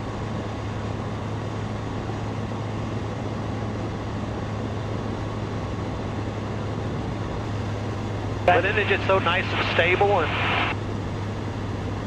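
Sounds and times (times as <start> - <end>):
aircraft engine and propeller drone: 0.0 - 12.0
rush of air noise: 8.4 - 10.8.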